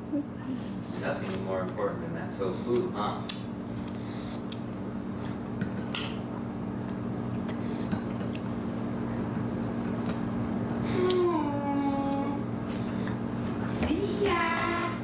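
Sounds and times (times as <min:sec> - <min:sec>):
steady low hum: 0:00.0 - 0:15.0
person humming: 0:10.9 - 0:12.5.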